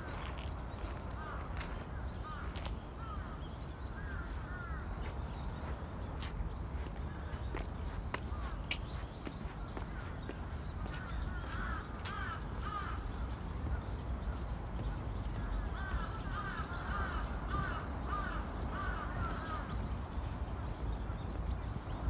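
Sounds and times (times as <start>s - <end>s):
crow cawing: 10.9s - 13.0s, 15.8s - 19.6s.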